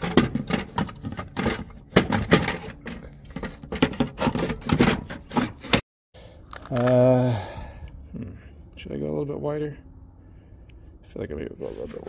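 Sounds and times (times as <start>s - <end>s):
hardware clicks and knocks: 0.0s - 5.8s.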